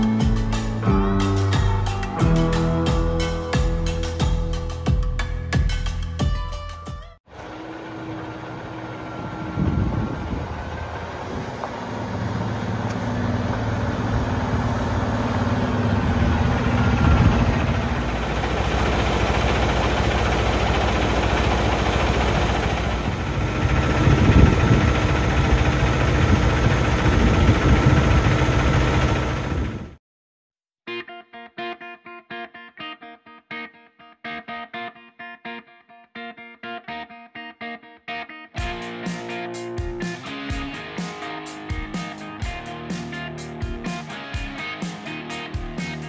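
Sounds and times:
diesel truck engine idling: 7.3s - 29.9s.

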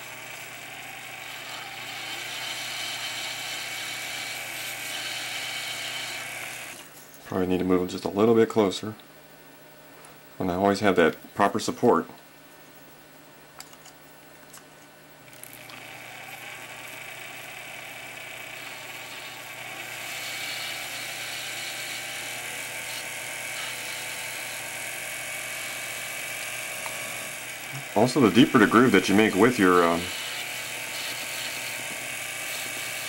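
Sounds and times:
graver scraping spinning brass: 27.8s - 30.2s.

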